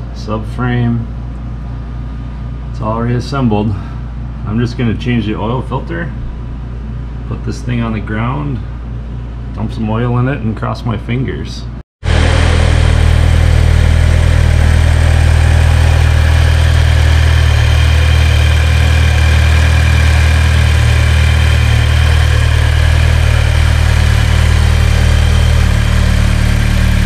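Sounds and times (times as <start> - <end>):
car engine idling: 12.0 - 27.0.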